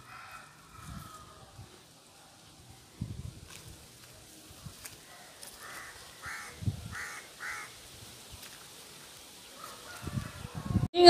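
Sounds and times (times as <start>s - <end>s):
crow cawing: 5.6s - 7.8s.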